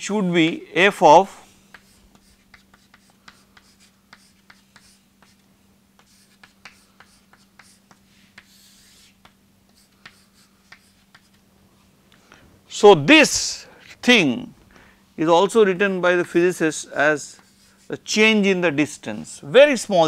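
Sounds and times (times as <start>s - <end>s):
chalk scraping on chalkboard: 1.7s - 5.4s, 6.0s - 11.4s, 17.2s - 18.1s
chalk tapping on chalkboard: 1.7s - 5.4s, 6.0s - 11.4s, 17.3s - 17.9s.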